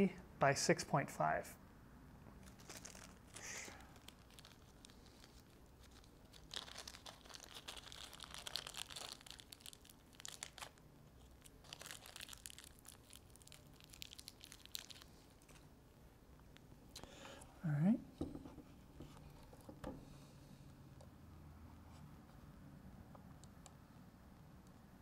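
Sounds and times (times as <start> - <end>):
plastic bag crinkling: 2.4 - 15.6.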